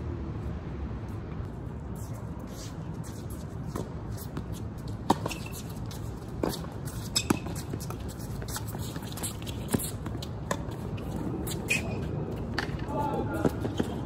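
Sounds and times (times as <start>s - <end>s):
steady background hum: 0.0s - 14.0s
tennis balls struck and bouncing: 6.4s - 11.4s.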